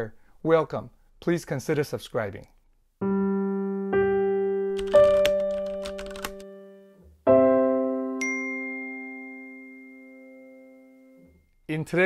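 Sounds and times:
keyboard chords ringing: 3.0 - 11.6.

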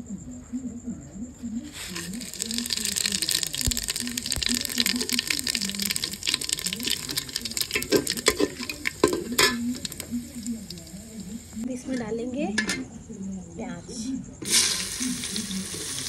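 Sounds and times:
spices sizzling in hot oil: 1.7 - 11.6, 14.4 - 16.0.

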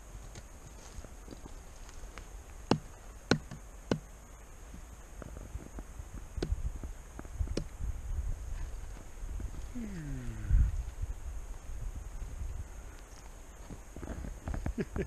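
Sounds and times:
light taps on log: 2.2 - 4.0
hatchet chopping log: 2.7 - 4.1.

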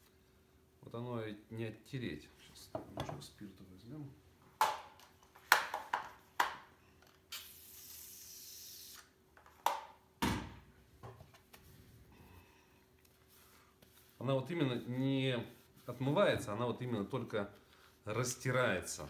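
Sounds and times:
steady hiss: 7.3 - 9.2.

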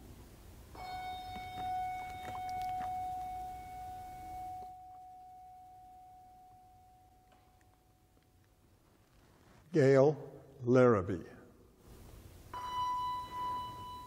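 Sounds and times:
handbell ringing: 12.6 - 14.0.

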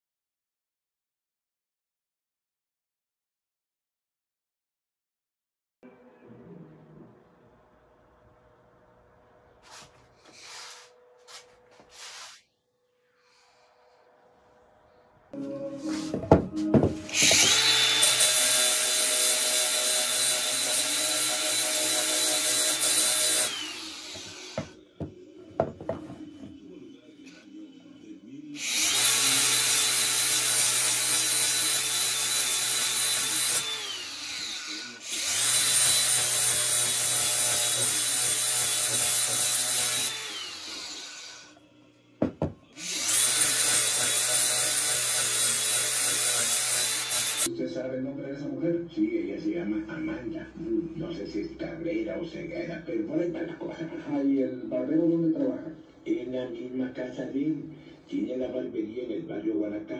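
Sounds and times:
angle grinder sanding wood: 9.6 - 12.4, 15.9 - 24.8, 28.6 - 41.6, 42.8 - 47.5
knocks: 16.2 - 17.0, 24.2 - 26.6, 42.2 - 42.6.

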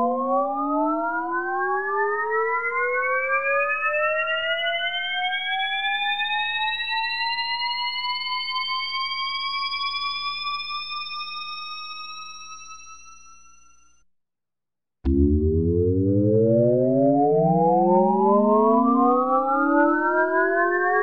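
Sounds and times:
rising synthesized whine: 15.1 - 21.0.

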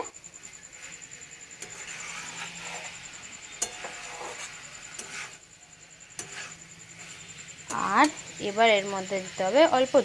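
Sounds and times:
metal spatula scraping a wok: 0.2 - 10.0
spatula clinking against metal: 1.0 - 5.4, 6.0 - 8.4.

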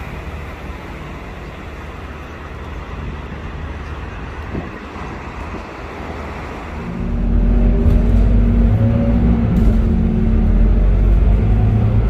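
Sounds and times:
bus diesel engine droning: 0.0 - 12.0
roadside traffic noise: 0.0 - 12.0.

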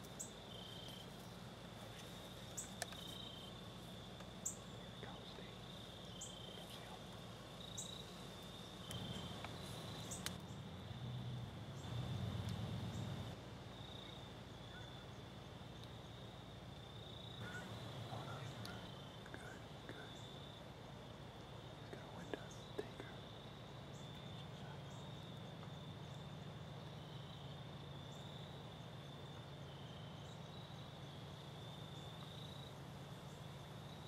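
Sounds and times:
crickets trilling: 0.0 - 34.0
faint clicks: 2.0 - 3.2, 8.4 - 10.5, 18.5 - 20.0.

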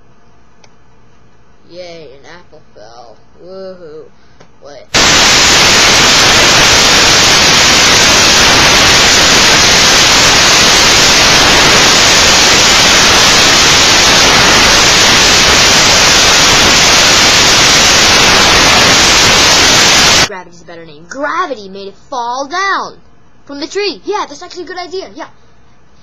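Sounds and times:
loud static hiss: 4.6 - 21.7.

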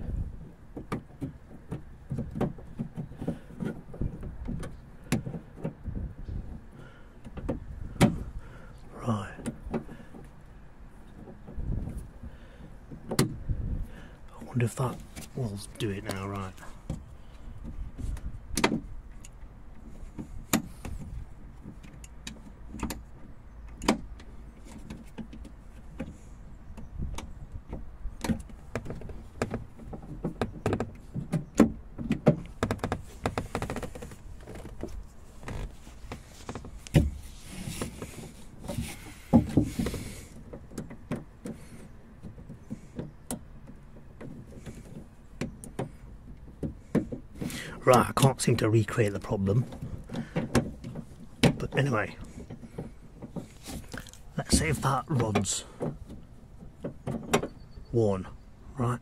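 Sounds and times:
rustling or whirring: 24.2 - 47.7, 48.8 - 57.6.

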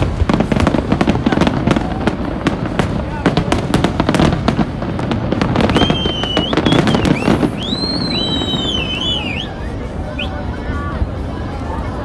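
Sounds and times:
fireworks bursting: 0.0 - 12.0
shrill high whistles: 5.7 - 9.6.

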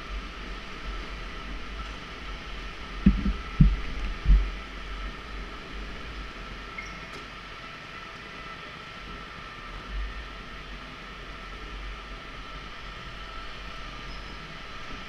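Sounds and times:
electric drive and tyres humming: 0.0 - 15.0
thin high whine: 0.0 - 15.0
dull low thumps: 3.0 - 4.6.

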